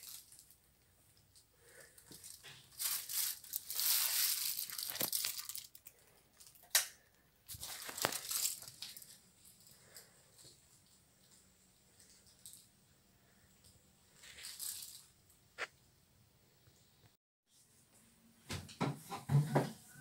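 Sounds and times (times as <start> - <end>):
rustling and crinkling: 0.0 - 6.8, 7.4 - 15.7.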